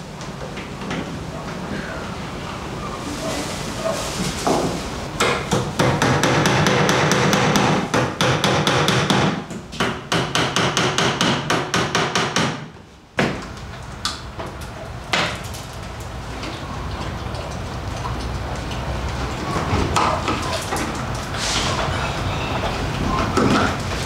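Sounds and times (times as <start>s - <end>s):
rapid hammering: 5.2s - 13.3s.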